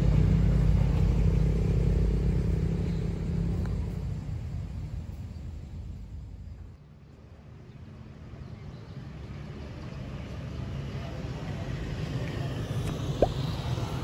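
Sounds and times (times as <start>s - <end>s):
motorbike and car engines: 0.0s - 14.0s.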